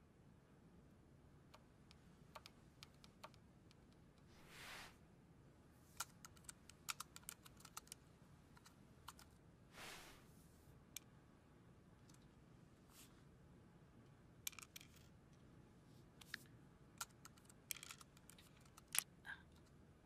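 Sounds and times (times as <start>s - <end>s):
short soft hisses: 4.4s - 5.0s, 9.7s - 10.4s.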